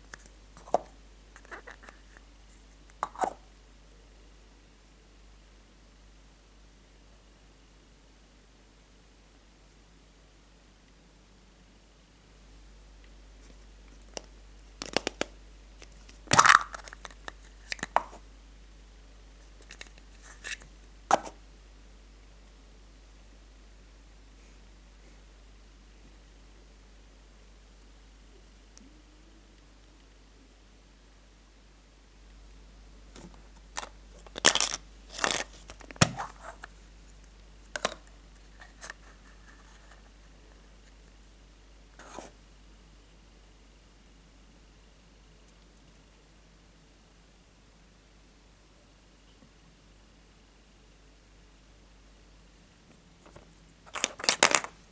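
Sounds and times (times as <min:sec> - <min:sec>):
plastic crackling: 0:14.0 - 0:18.2, 0:33.2 - 0:36.7, 0:53.2 - 0:54.8
plastic capsule clicks: 0:14.1 - 0:18.2, 0:37.8 - 0:38.1, 0:53.3 - 0:54.8
plastic capsule rattling: 0:33.8 - 0:36.3, 0:53.9 - 0:54.8
rustling: 0:52.9 - 0:54.9.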